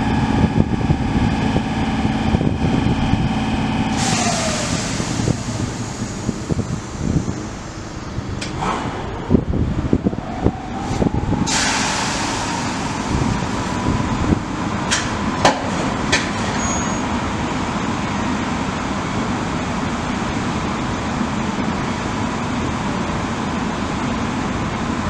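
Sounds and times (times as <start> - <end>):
cooling blowers humming and whining: 0.0 - 16.5
sudden hiss: 3.9 - 8.8, 11.5 - 13.2.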